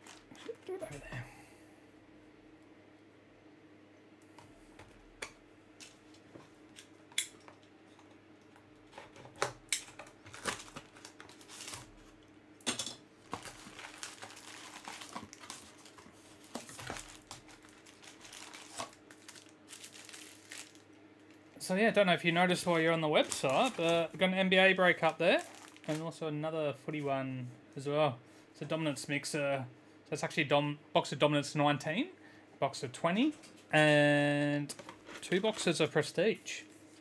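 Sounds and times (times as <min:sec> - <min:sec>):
plastic wrapping crinkling: 0:00.0 - 0:00.7, 0:09.8 - 0:12.2, 0:13.2 - 0:21.5, 0:22.3 - 0:26.1.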